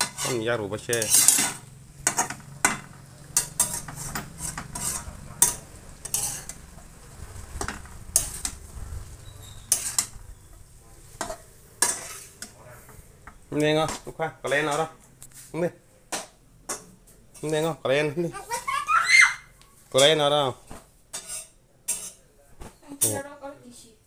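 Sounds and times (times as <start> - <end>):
metal spatula scraping a pan: 0.0 - 6.7, 7.3 - 15.6, 20.0 - 22.2
food sizzling in a pan: 0.0 - 12.7.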